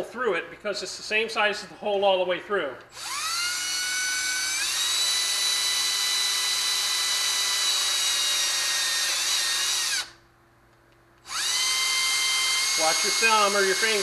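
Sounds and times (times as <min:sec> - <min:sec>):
cordless drill whining: 0:02.9 - 0:10.2, 0:11.2 - 0:14.0.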